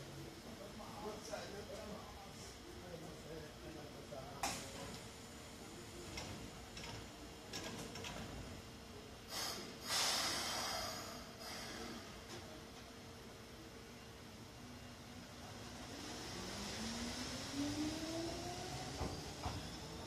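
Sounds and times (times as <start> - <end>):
train doors hissing air: 9.2 - 12.6, 18.0 - 20.0.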